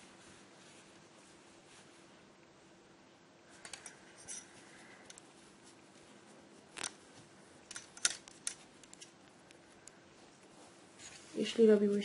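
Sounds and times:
knitting needles clicking: 0:07.7 - 0:10.0.

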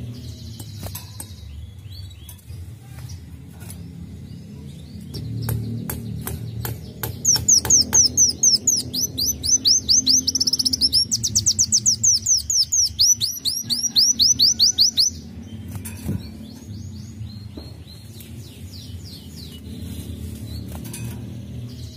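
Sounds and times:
bird ticks: 0:05.1 - 0:15.1
sunbird singing high whistles: 0:07.2 - 0:15.2.

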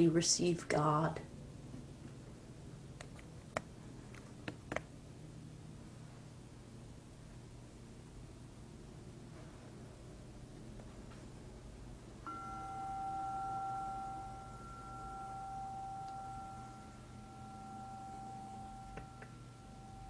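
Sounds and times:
meditation bell ringing: 0:12.2 - 0:20.0.

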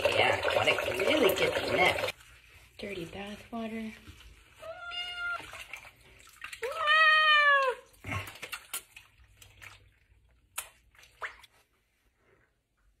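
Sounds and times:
water splashing: 0:00.0 - 0:02.7, 0:03.4 - 0:11.7
cat meowing: 0:04.6 - 0:05.5, 0:06.6 - 0:07.8.

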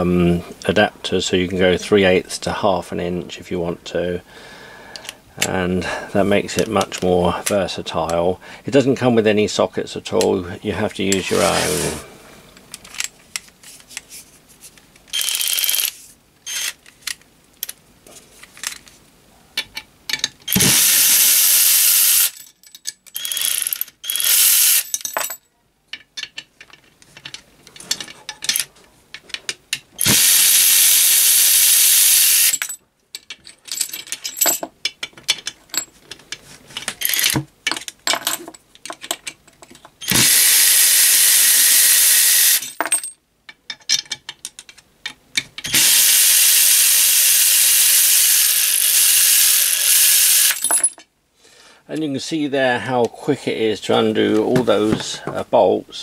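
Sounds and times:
cordless ratchet wrench spinning: 0:15.1 - 0:15.9, 0:20.5 - 0:22.4, 0:23.2 - 0:24.8, 0:30.0 - 0:32.6, 0:40.0 - 0:42.7, 0:45.7 - 0:50.6.

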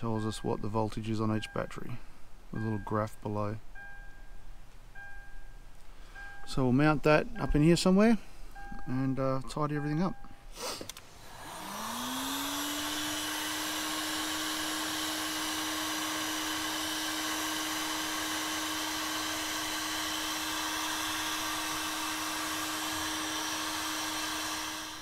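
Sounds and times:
heat gun fan whine and hum: 0:07.3 - 0:25.0
rush of hot air: 0:10.6 - 0:25.0.

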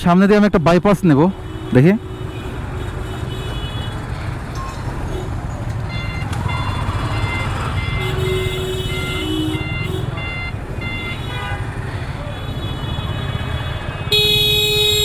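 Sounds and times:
traffic engines rumbling: 0:00.0 - 0:15.0
electronic warning beeps: 0:05.8 - 0:08.2.

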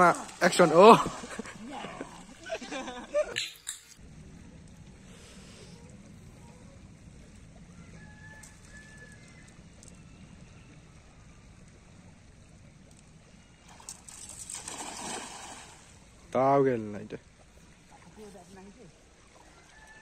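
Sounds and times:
cast net splashing into river: 0:00.0 - 0:01.4, 0:13.6 - 0:16.0
outdoor background noise: 0:00.0 - 0:20.0.

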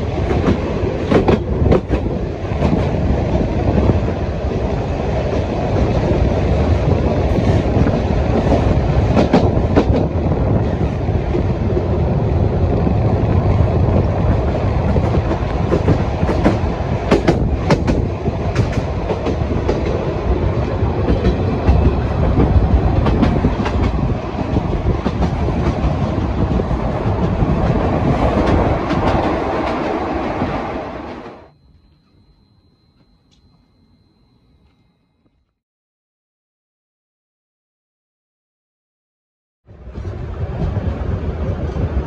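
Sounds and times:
train rumbling along track: 0:00.0 - 0:34.3, 0:39.7 - 0:42.0
wheels clacking over rail joints: 0:14.2 - 0:31.4.

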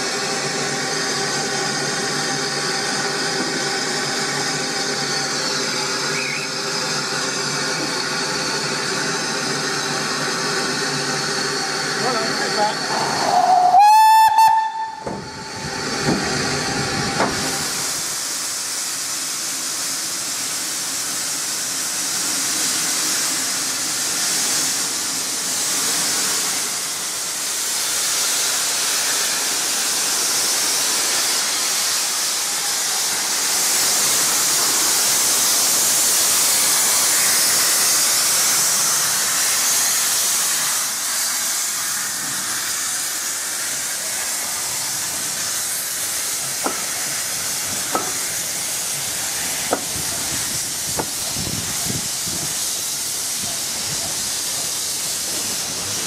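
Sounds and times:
steam hissing: 0:00.0 - 0:56.0.

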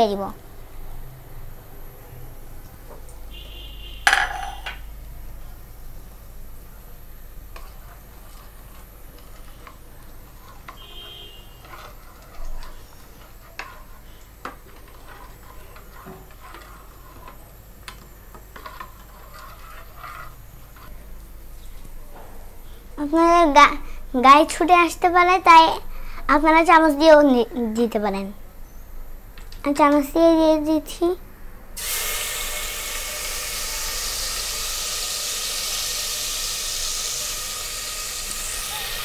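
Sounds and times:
loud ringing clang: 0:04.0 - 0:04.8
metal spoon scraping pots: 0:07.5 - 0:21.1.

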